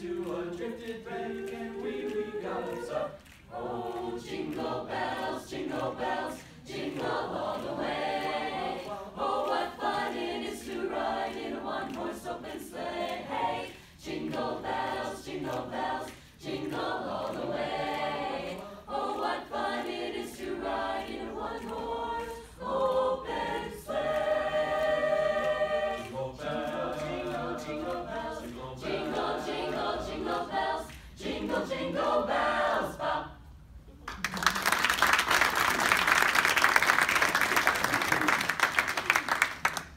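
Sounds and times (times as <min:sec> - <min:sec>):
mixed choir singing a cappella: 0:00.0 - 0:33.6
audience applause: 0:34.0 - 0:39.9.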